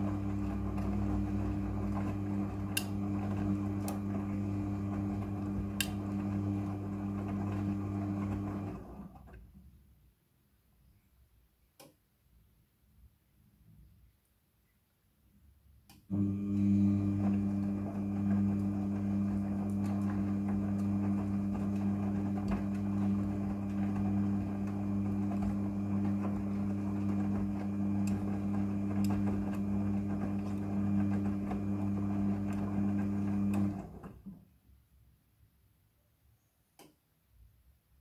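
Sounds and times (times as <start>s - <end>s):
washing machine drum turning: 0.0s - 8.8s, 16.2s - 34.2s.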